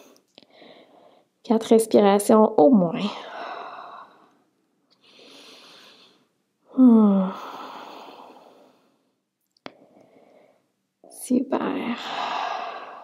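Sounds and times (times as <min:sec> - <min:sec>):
woman sighing exhale: 0:06.7 - 0:08.4.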